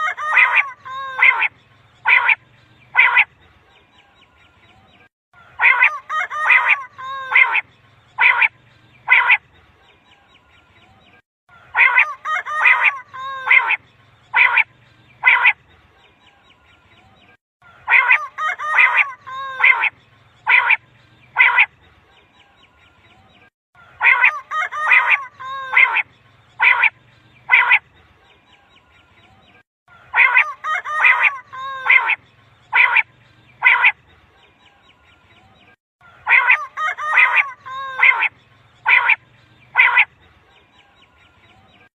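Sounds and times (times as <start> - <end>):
quail calling: 0.0 - 3.3, 5.4 - 9.4, 11.6 - 15.6, 17.7 - 21.7, 23.8 - 26.0, 26.6 - 27.8, 29.9 - 34.0, 36.0 - 40.1.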